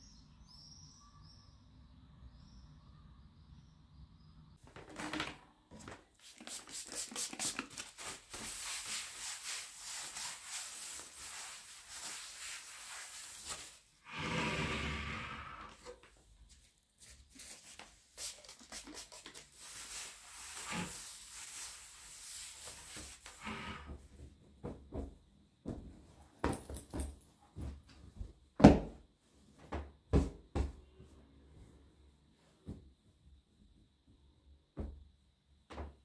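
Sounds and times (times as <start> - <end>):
rubbing and handling noises: 4.6 - 14.0, 15.8 - 25.2.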